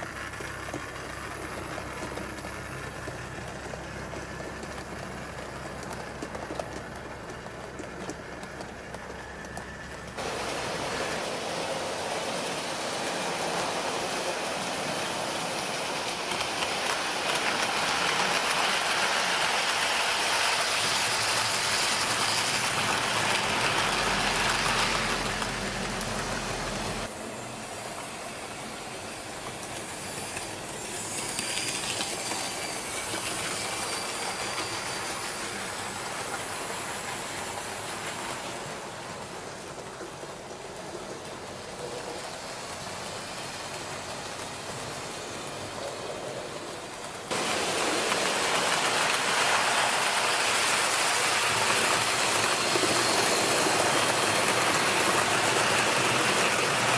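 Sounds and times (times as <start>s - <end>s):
model train wheels clattering: 0.0s - 27.1s, 29.0s - 56.9s.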